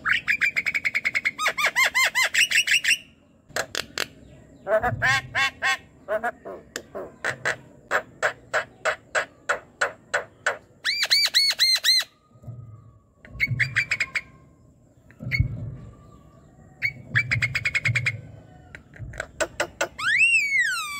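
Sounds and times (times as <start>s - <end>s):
bird whistling and chattering: 0.0s - 3.2s, 4.6s - 12.2s, 13.3s - 14.5s, 16.8s - 18.4s, 19.2s - 20.9s
low thumps: 14.7s - 19.8s.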